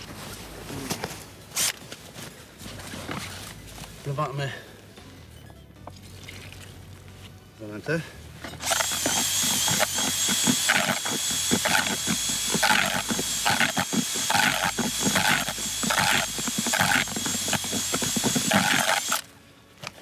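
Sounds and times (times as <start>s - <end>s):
rasping churn of mix in bucket: 8.6s - 19.2s
cordless drill motor whine: 8.6s - 19.3s.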